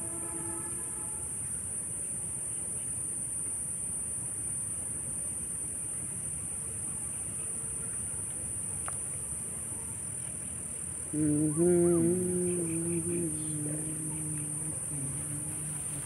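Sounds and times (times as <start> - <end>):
crickets chirring: 0.0 - 16.0
low long held call: 11.1 - 16.0.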